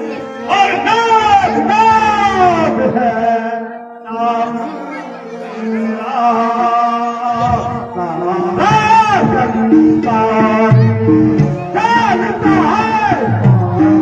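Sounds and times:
harmonium sustained notes: 0.0s - 14.0s
man chanting: 0.0s - 14.0s.

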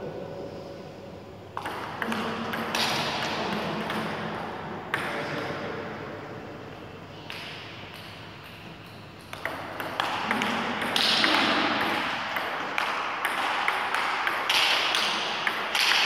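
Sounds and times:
table tennis ball clicking: 7.3s - 16.0s.

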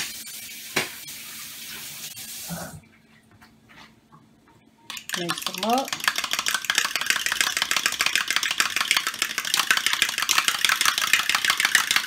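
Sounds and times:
metal utensil beating eggs in cup: 4.9s - 12.0s.

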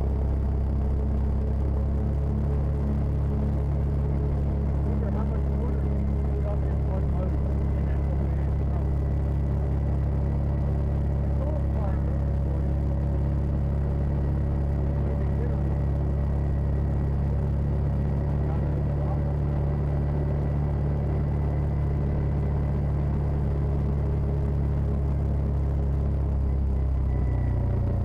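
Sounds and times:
vehicle engine droning: 0.0s - 28.0s.

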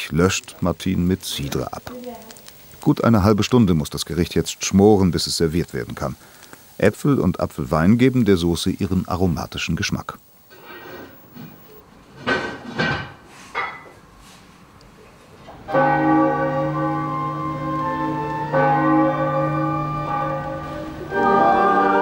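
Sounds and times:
cathedral bells ringing: 15.7s - 22.0s.

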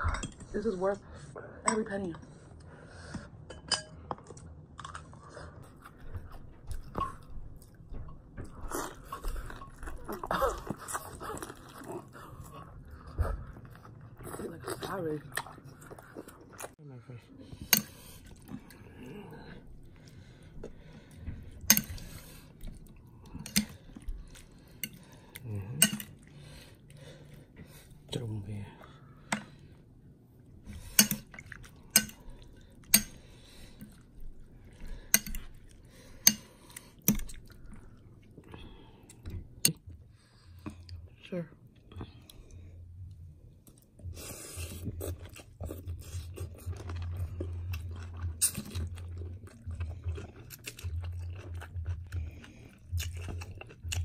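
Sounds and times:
chewing and crunching food: 2.2s - 54.0s.

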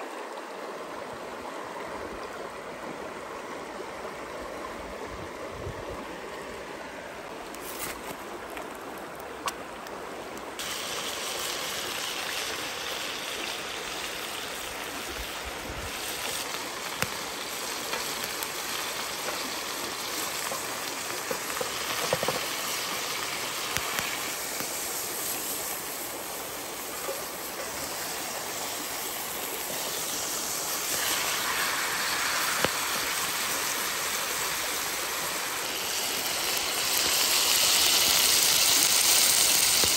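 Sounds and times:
stream running over rocks: 0.0s - 39.9s
meat sizzling in a pan: 10.6s - 39.9s.

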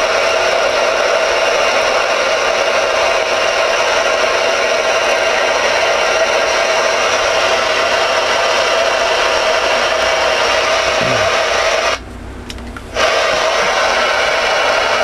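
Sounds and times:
radio static hiss: 6.4s - 12.0s.

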